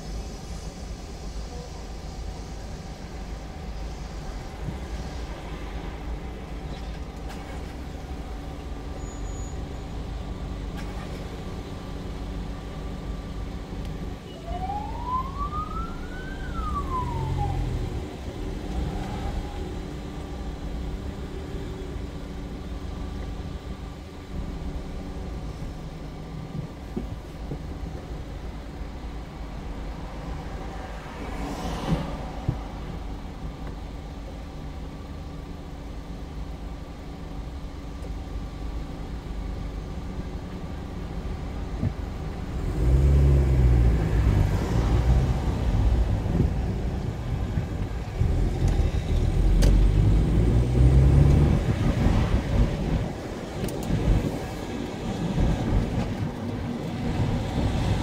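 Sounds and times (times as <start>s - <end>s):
car engine and road rumble: 0.0s - 58.0s
siren-like whoop: 14.3s - 17.9s.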